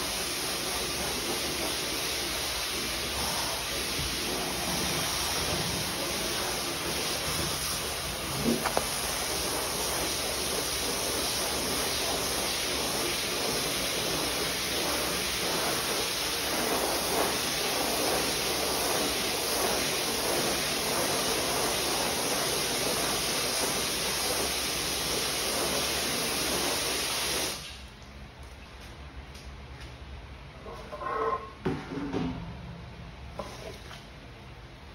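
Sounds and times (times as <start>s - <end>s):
hose water spraying: 0.0s - 27.8s.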